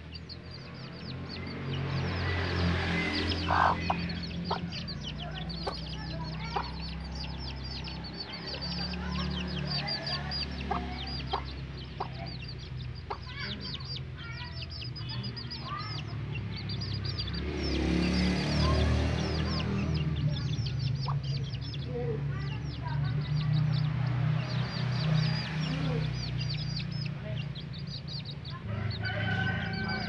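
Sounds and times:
chicks peeping: 0.0 - 30.0.

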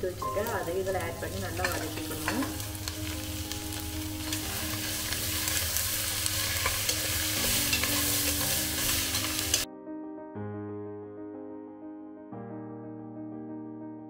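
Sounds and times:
mushrooms sizzling in oil: 0.0 - 9.7
metal spatula scraping pot: 1.6 - 9.6.

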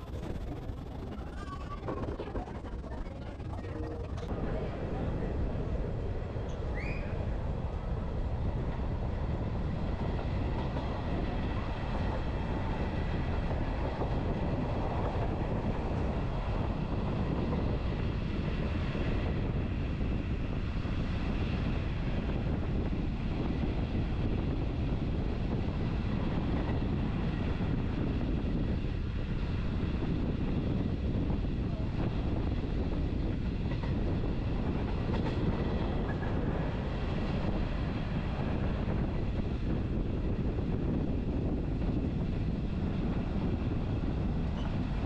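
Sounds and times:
train wheels rumbling: 0.0 - 45.0.

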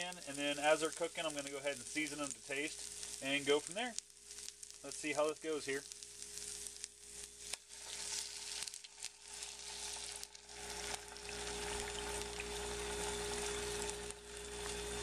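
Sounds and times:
fat sizzling in frying pan: 0.0 - 15.0
small crackles: 0.0 - 15.0.

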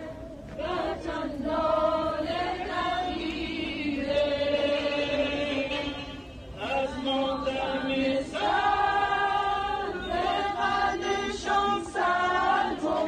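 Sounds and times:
group singing in unison: 0.0 - 13.0.

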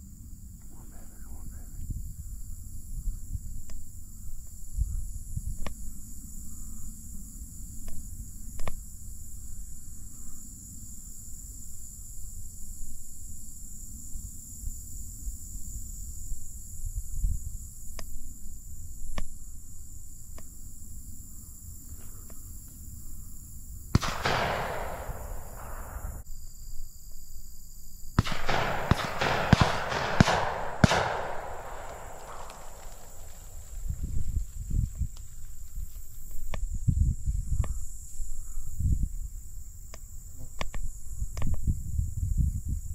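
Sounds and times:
wind rumbling on microphone: 0.0 - 26.3, 28.2 - 42.9
sudden loud crack: 24.0 - 26.2, 28.2 - 33.8
sharp clicks: 28.2 - 33.5
rustling with sharp cracks: 28.2 - 36.7.

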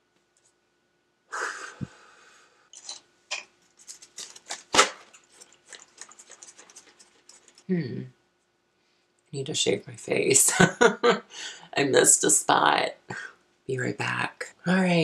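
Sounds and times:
breathy exhale: 1.3 - 2.7
hands scratching near microphone: 3.7 - 7.7.

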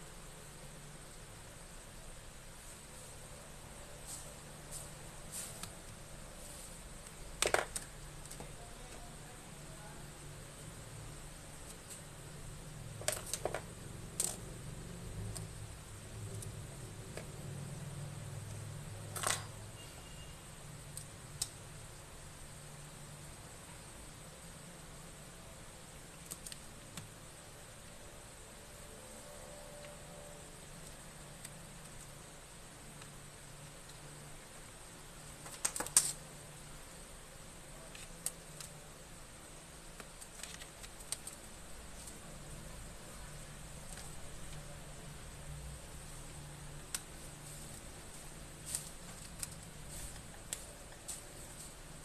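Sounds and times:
low steady hum: 0.0 - 52.0.

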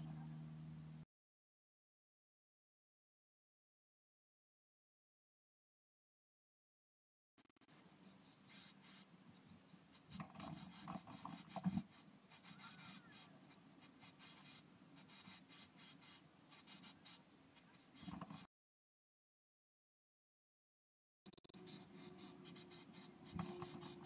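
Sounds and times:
chicks rustling in nest: 7.6 - 18.5, 21.5 - 24.0.

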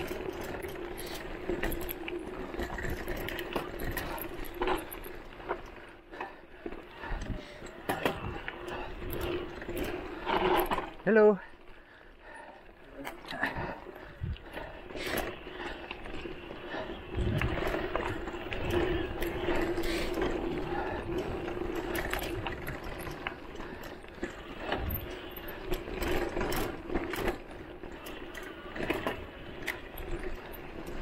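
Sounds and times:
bike rattling over bumps: 0.0 - 31.0.

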